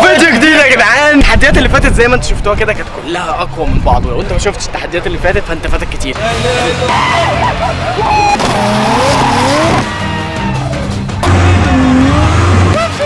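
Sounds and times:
background music: 6.0s - 13.0s
car tyres squealing: 6.7s - 13.0s
race car engine revving: 6.8s - 10.1s, 10.9s - 13.0s.

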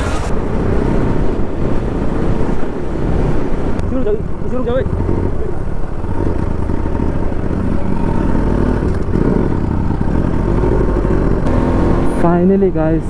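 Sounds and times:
wind rumbling on microphone: 0.0s - 12.1s
motorcycle engine running: 3.9s - 13.0s.

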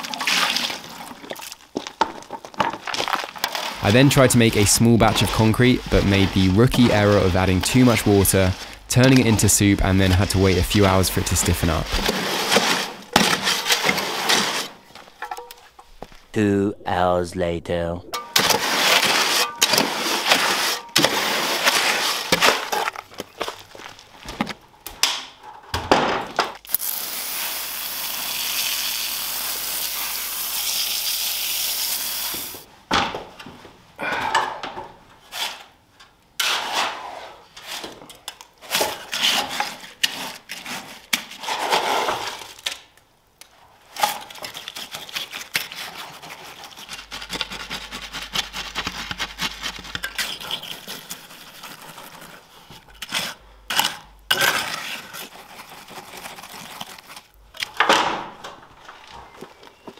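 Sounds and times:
hand tools scraping concrete: 2.2s - 16.0s, 18.2s - 23.9s, 36.4s - 38.0s, 38.6s - 42.5s, 44.0s - 57.4s.

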